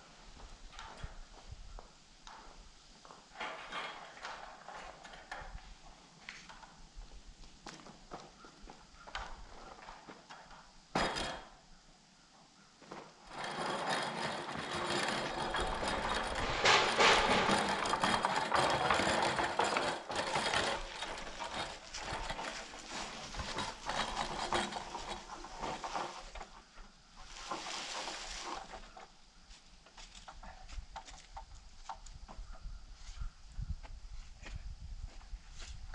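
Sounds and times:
wooden boards dragged over leaves: 12.9 - 31.2.

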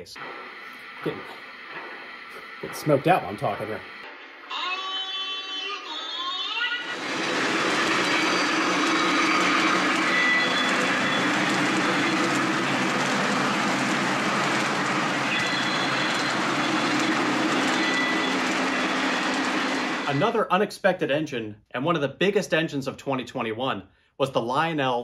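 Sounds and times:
model train rolling on track: 6.7 - 20.4.

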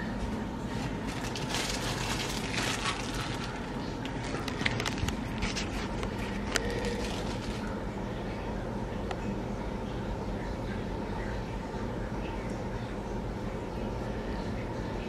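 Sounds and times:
kitchen appliance humming: 0.0 - 10.2
rustling: 0.7 - 7.8.

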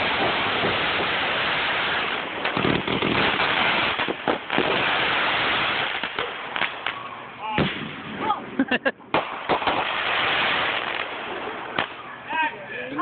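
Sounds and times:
fireworks crackling: 0.0 - 13.0
fireworks pops: 2.0 - 7.0, 7.6 - 8.2, 9.1 - 12.0
sharp bangs: 2.1 - 8.4, 9.1 - 12.0.

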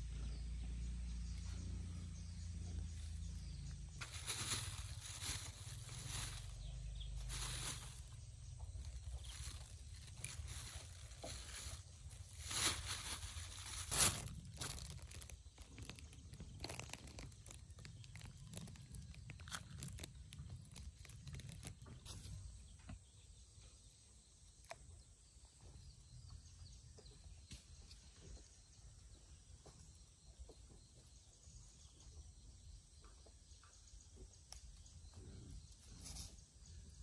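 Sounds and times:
plastic bag crinkling: 4.0 - 22.1.

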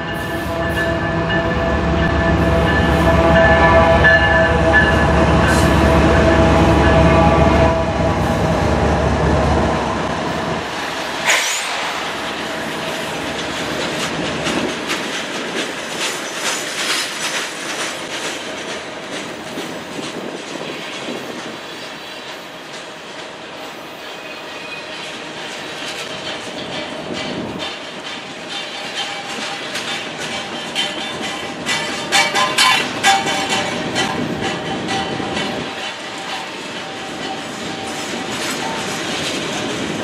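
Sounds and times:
train wheels clacking: 10.0 - 40.0.

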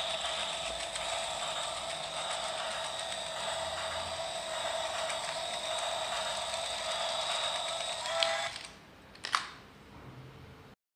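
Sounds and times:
toy train whirring and ticking: 0.0 - 8.7.

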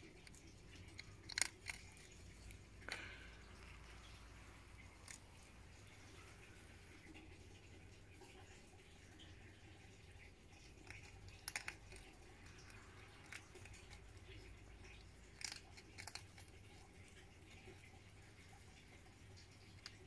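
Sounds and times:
hedgehog crunching dry food: 0.0 - 6.6, 10.5 - 17.9.

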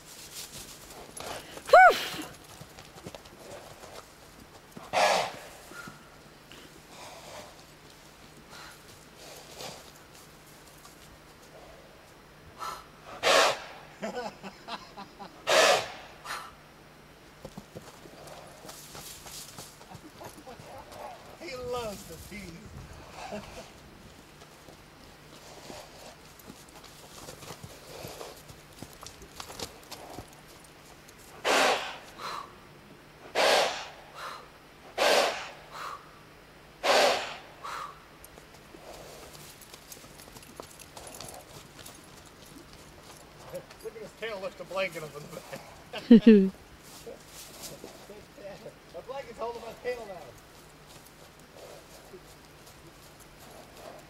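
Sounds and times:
horse snorting: 4.8 - 5.9, 6.9 - 7.6, 12.6 - 13.7, 15.4 - 16.4, 31.4 - 32.5, 33.3 - 36.0, 36.8 - 38.0
loud breath puffs: 12.6 - 13.6, 33.3 - 36.1, 36.8 - 38.0
horse blowing through nose: 31.4 - 32.4, 33.3 - 34.3, 35.0 - 36.0, 36.8 - 37.9.

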